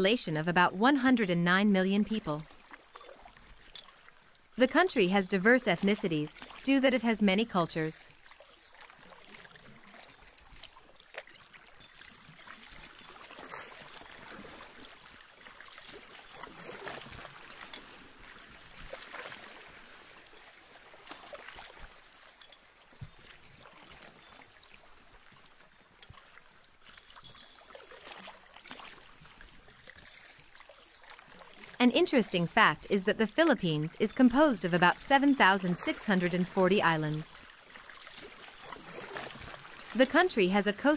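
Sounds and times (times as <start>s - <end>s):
water lapping against boat hull: 0.0s - 40.9s
small splashes: 2.4s - 4.3s, 8.0s - 31.8s, 37.1s - 40.2s.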